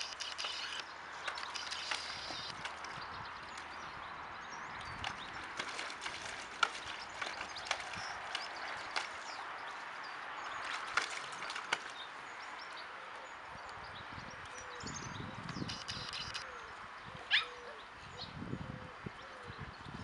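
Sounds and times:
puppy splashing in water: 0.0s - 12.6s.

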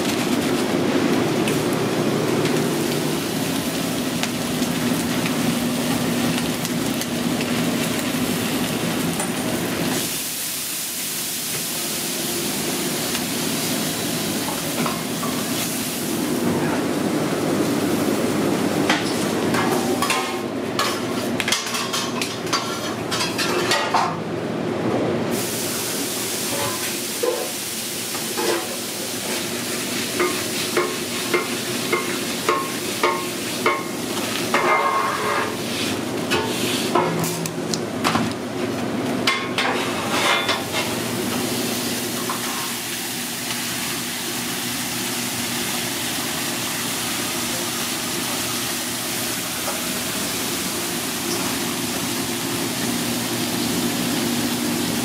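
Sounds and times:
paper and foil rustling: 0.0s - 1.8s
steak sizzling on a griddle: 0.0s - 16.3s, 25.3s - 37.0s, 39.3s - 55.0s
kitchen clatter: 18.8s - 24.2s, 26.5s - 29.4s, 30.1s - 38.4s, 39.2s - 41.4s, 42.1s - 42.9s.

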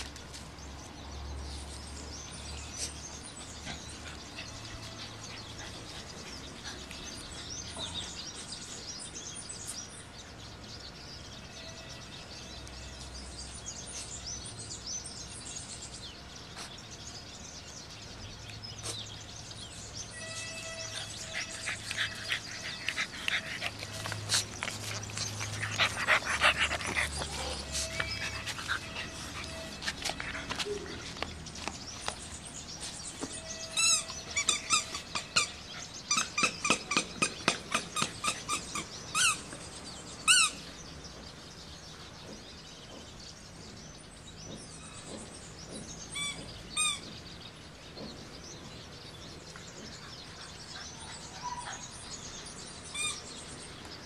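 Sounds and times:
birds chirping: 0.0s - 54.0s
puppy making snorting noises: 21.0s - 31.3s.

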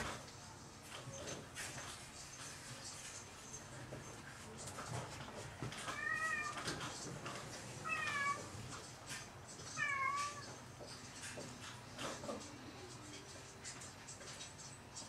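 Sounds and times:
cat meowing: 5.8s - 6.8s, 7.8s - 8.6s, 9.8s - 10.6s.

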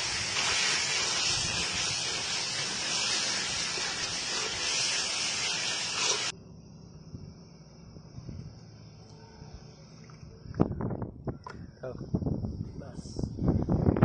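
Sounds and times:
sauce sizzling in a metal pan: 0.0s - 6.3s.

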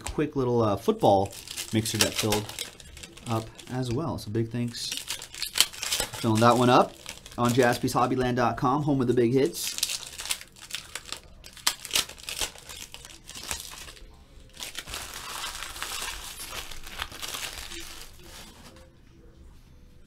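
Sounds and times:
foil wrapper crinkling: 0.8s - 8.4s, 9.4s - 18.9s.

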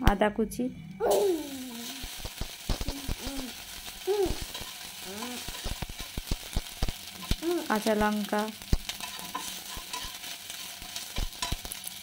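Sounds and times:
spices sizzling in hot oil: 1.0s - 12.0s
metal spatula scraping pan: 9.0s - 11.7s.

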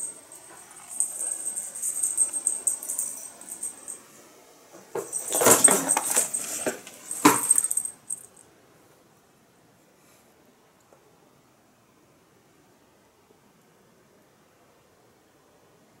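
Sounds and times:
cats scuffling on floor: 0.0s - 4.0s, 5.0s - 7.9s.

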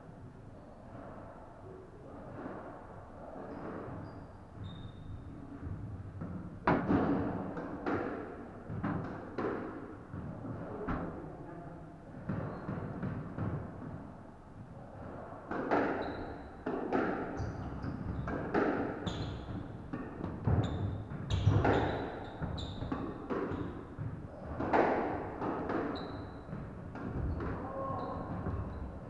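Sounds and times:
squash ball hits echoing: 16.6s - 29.0s
shoes squeaking on wooden floor: 19.0s - 19.6s, 20.6s - 22.9s, 25.9s - 26.5s.

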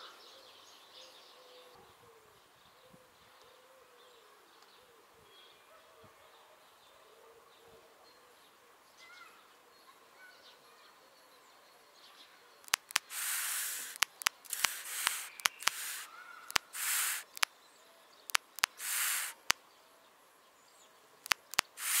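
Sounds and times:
owl chicks bill snapping clicks: 12.7s - 17.5s, 18.3s - 19.6s, 21.2s - 22.0s
owl chicks hissing: 12.7s - 17.5s, 18.3s - 19.6s, 21.3s - 22.0s.

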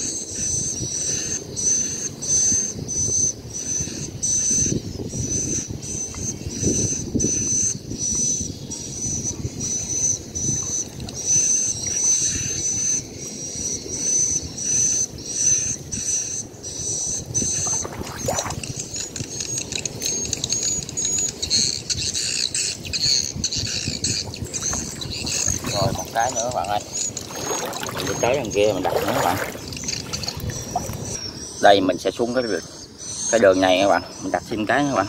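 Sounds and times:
muddy water sloshing and splashing: 17.4s - 19.1s, 24.0s - 31.2s
high chirping call: 17.4s - 32.0s.

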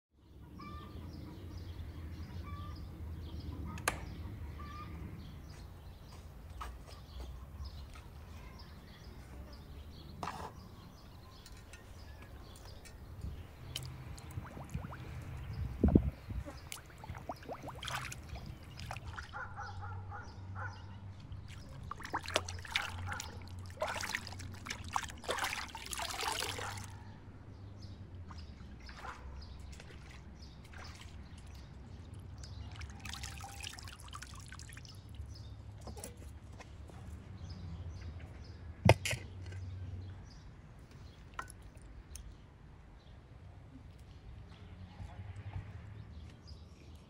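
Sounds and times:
water sloshing and splashing: 10.2s - 19.7s, 21.2s - 27.0s, 28.2s - 36.2s, 40.9s - 42.2s.

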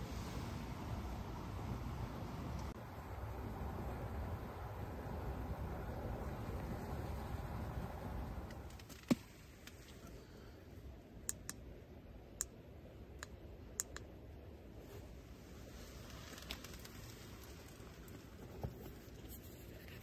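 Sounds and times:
campfire crackling: 15.4s - 19.2s.

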